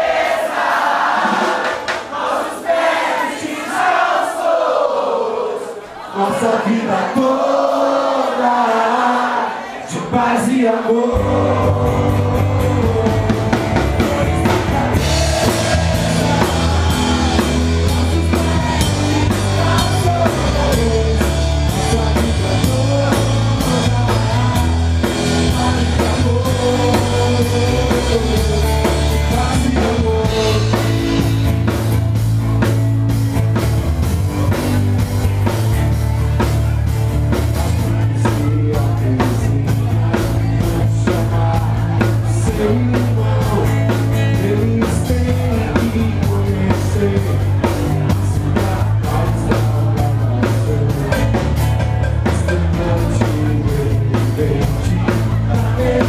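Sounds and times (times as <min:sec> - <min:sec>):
drum kit: 0:00.0 - 0:02.5, 0:11.1 - 0:56.0
person singing: 0:06.2 - 0:31.3, 0:37.6 - 0:56.0
electric bass: 0:11.1 - 0:56.0.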